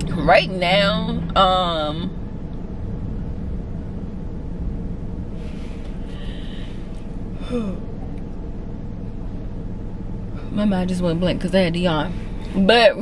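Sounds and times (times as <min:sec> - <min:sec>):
low car rumble: 0:00.0 - 0:13.0
woman yawning: 0:07.4 - 0:07.8.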